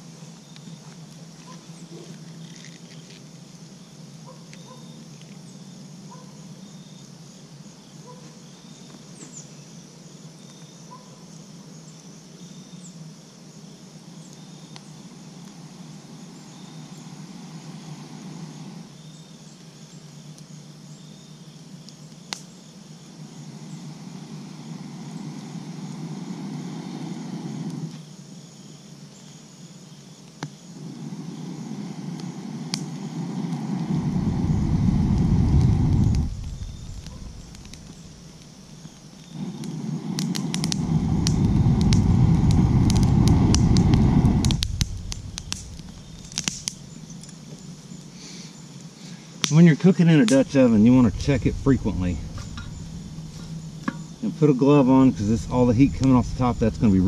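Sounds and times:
crickets chirping: 0.0s - 57.0s
breath blowing through tube: 33.1s - 38.5s, 39.4s - 46.8s
sharp click: 44.4s - 46.8s.

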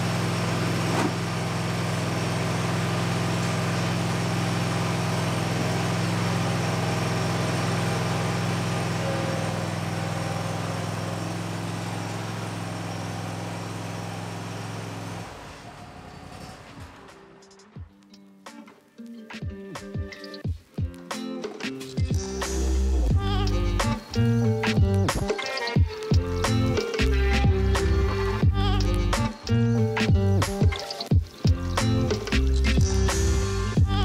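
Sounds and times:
mower engine running: 0.0s - 17.0s, 31.5s - 34.0s.

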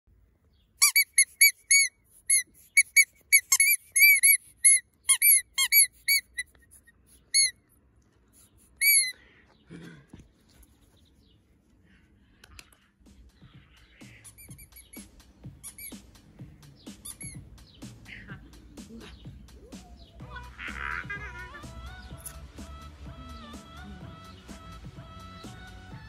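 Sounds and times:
squeaky dog toy squeaking: 0.8s - 7.6s, 8.8s - 9.2s, 14.2s - 16.0s, 17.0s - 17.4s.

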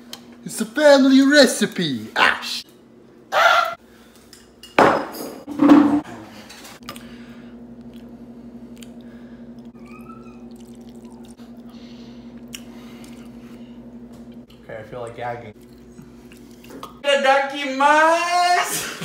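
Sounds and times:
dishes clattering: 4.4s - 6.7s
steady low hum: 5.5s - 17.0s.

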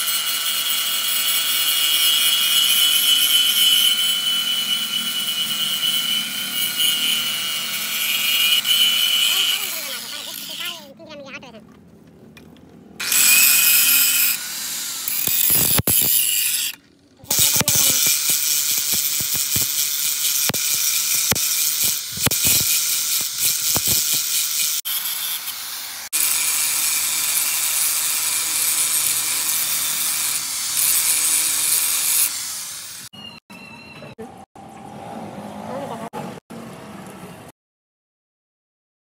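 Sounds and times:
angle grinder grinding metal: 0.0s - 10.9s, 13.0s - 33.1s.

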